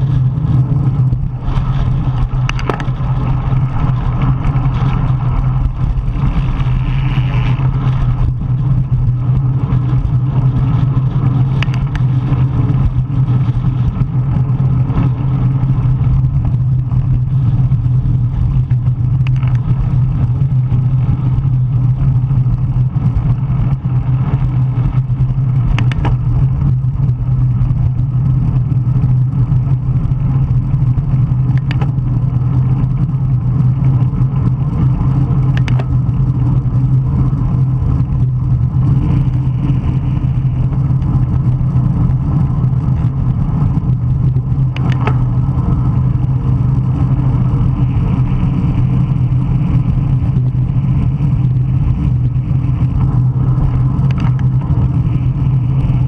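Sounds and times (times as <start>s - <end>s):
strong wind rushing over microphone: 0.0s - 56.0s.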